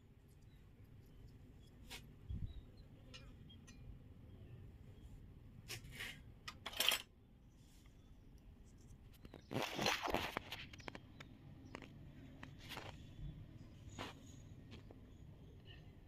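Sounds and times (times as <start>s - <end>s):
toy kitchen pieces clinking: 6.5s - 7.1s.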